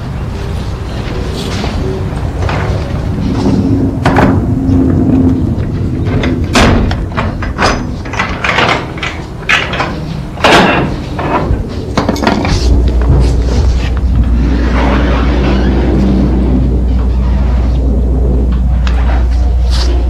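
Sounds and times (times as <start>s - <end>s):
garage door rattling along tracks: 0.0s - 20.0s.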